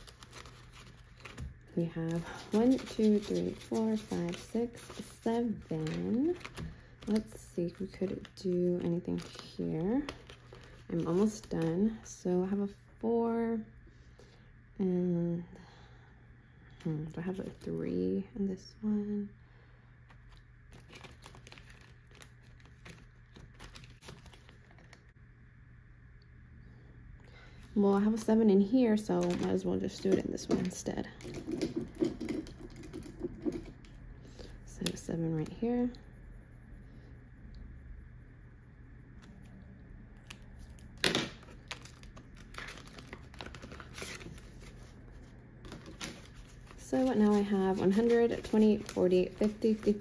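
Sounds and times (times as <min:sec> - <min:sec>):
paper and plastic crinkling: 0:00.0 - 0:12.0, 0:20.1 - 0:25.1, 0:29.0 - 0:34.0, 0:40.2 - 0:50.0
plastic binder pockets rustling: 0:00.0 - 0:12.0, 0:20.2 - 0:25.0, 0:40.3 - 0:50.0.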